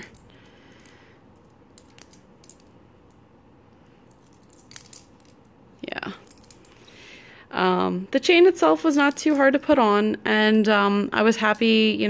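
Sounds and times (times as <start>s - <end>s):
charms and chain bracelet clinking: 0.0s - 3.2s, 3.9s - 7.1s, 8.9s - 9.8s.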